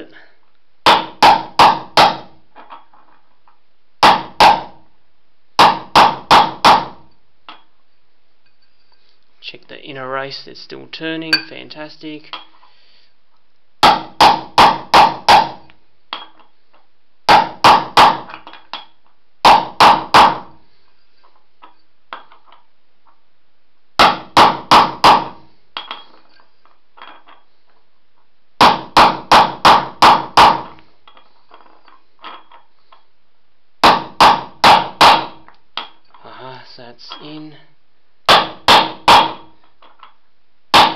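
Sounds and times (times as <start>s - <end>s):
hammer striking metal: 0.9s - 2.3s, 24.0s - 26.1s, 28.6s - 31.2s, 33.8s - 36.0s, 38.3s - 39.5s.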